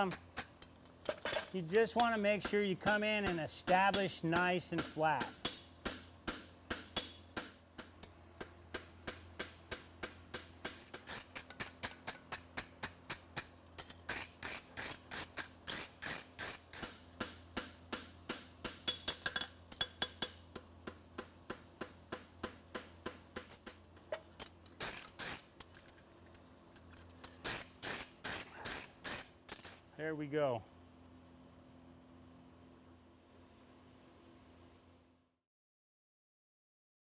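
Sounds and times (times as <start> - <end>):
hammer striking steel on anvil: 2.0 - 10.8.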